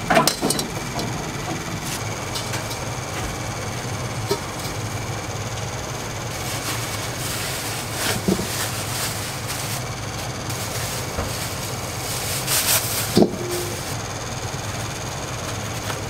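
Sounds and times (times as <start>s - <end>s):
kitchen clatters: 0.0s - 2.9s
mechanical roar with low hum: 0.0s - 16.0s.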